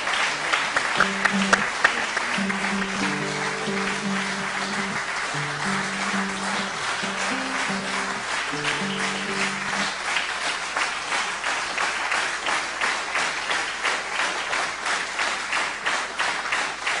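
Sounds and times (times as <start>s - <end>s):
audience applause: 0.0s - 17.0s
orchestra holding final chord: 1.0s - 10.0s.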